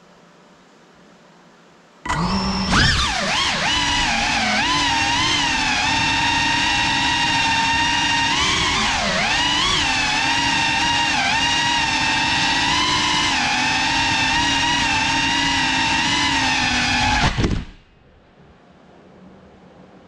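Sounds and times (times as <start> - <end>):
drone motors whining: 2.1 - 17.8
brief burst: 16.3 - 18.0.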